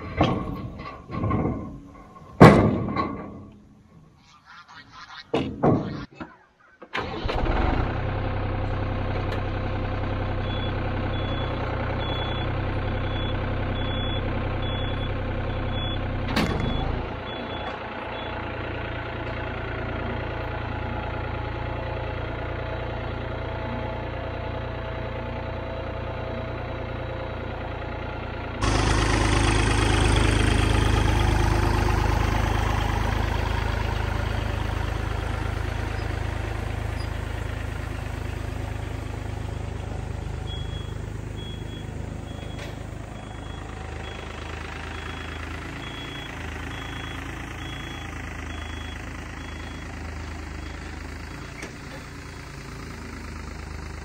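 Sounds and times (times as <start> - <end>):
tractor engine running: 0.0 - 4.1, 6.9 - 54.0.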